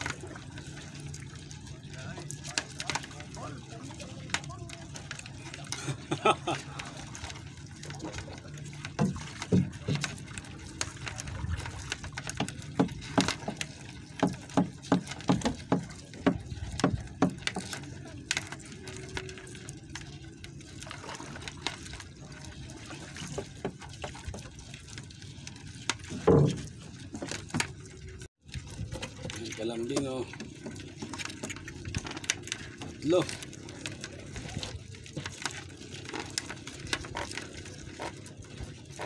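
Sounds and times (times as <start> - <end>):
splashes and knocks: 0.0 - 39.0
water slapping against boat hull: 0.0 - 39.0.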